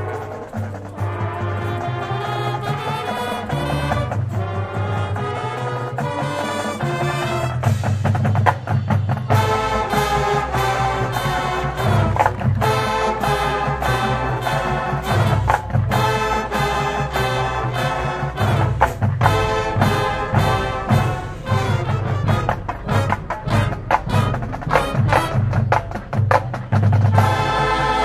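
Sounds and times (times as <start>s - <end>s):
brass chords: 0.0s - 28.0s
drums and percussion: 0.0s - 28.0s
marching band playing: 0.0s - 28.0s
deep bass part: 18.4s - 27.2s.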